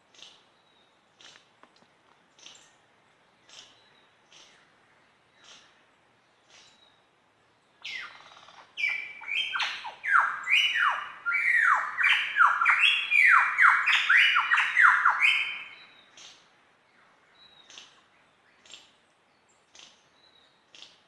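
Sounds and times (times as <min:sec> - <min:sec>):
lyrebird singing whistled notes: 0:07.8 - 0:16.1.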